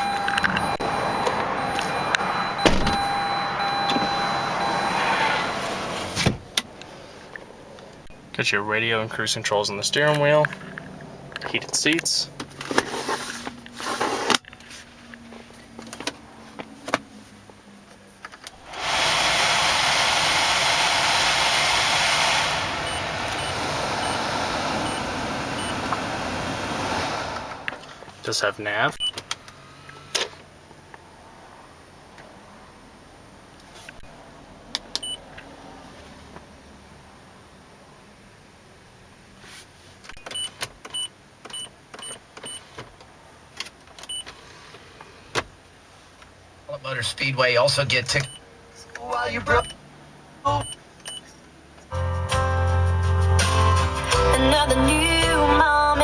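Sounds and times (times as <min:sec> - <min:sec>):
faint regular beeps: 0:00.0 - 0:05.0, 0:48.1 - 0:48.4, 0:49.5 - 0:49.8
ventilation fan rush of air: 0:18.6 - 0:28.4.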